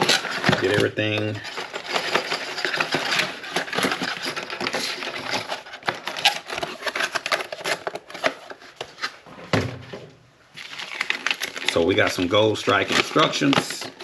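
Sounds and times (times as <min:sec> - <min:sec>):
small parts clicking and clattering: 0:00.0 - 0:08.6, 0:10.8 - 0:14.0
wrappers rustling and crackling: 0:00.0 - 0:09.2, 0:10.5 - 0:14.0.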